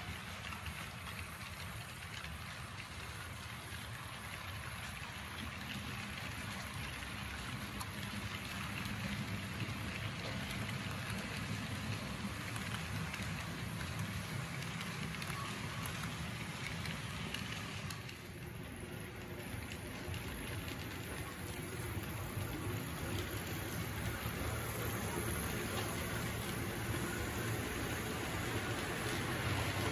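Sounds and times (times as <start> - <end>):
model train wheels rumbling: 0.0 - 29.9
faint track clicks: 10.2 - 29.9.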